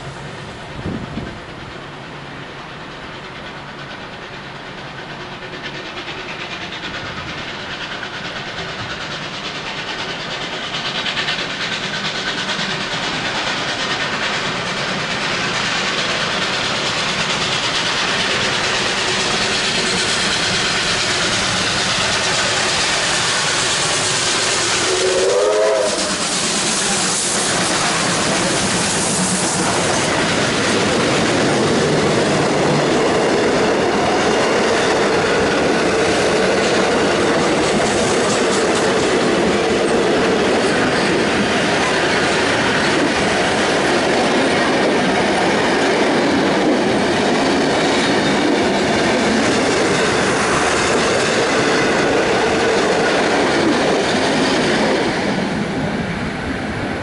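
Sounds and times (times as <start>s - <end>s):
hissing steam: 0.0s - 57.0s
steam locomotives approaching: 0.0s - 57.0s
steam whistle blast: 24.5s - 27.4s.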